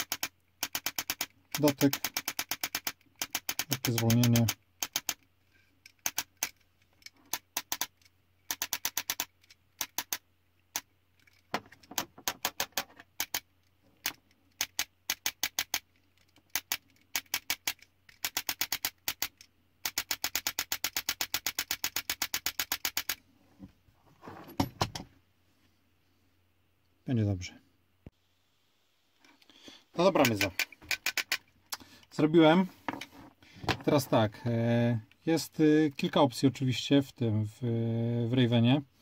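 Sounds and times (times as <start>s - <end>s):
trigger mechanism clicking: 0.0s - 5.2s, 30.2s - 31.5s
parts rattling: 0.0s - 23.2s, 24.2s - 25.1s, 29.2s - 34.2s.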